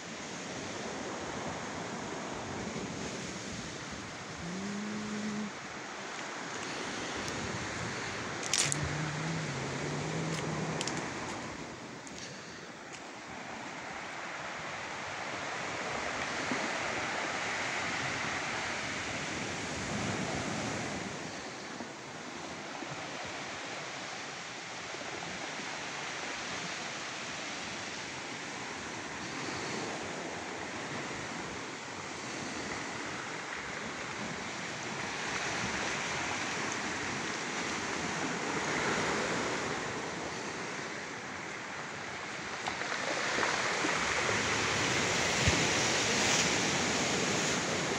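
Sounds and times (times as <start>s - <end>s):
flowing water rushing: 0.9s - 18.7s.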